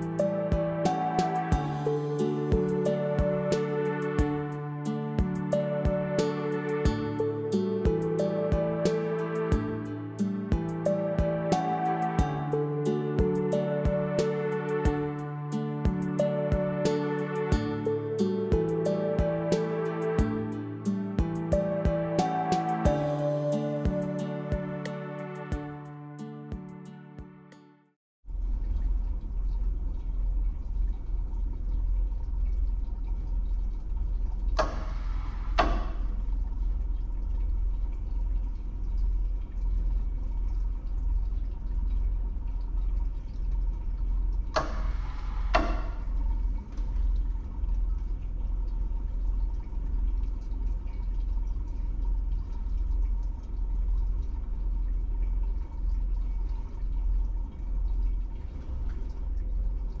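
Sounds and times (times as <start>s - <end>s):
steady low hum: 28.3s - 60.0s
solenoid valve ticking: 34.5s - 36.2s, 44.3s - 47.3s.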